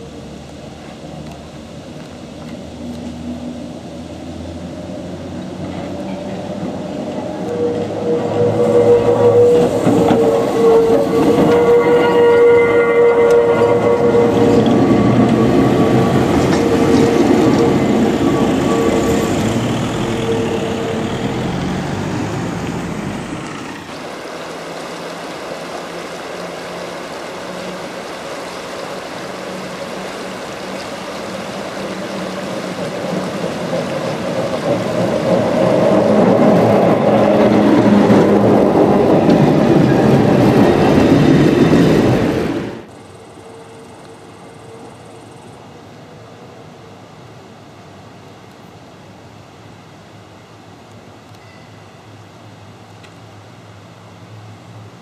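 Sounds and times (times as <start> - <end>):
river rushing over rocks: 0.0 - 42.9
electric tram passing: 0.0 - 49.0.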